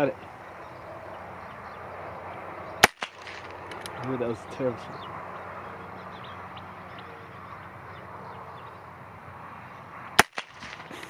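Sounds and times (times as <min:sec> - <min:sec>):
open-air background: 0:00.0 - 0:11.0
revolver shot: 0:02.8 - 0:03.6, 0:10.2 - 0:10.9.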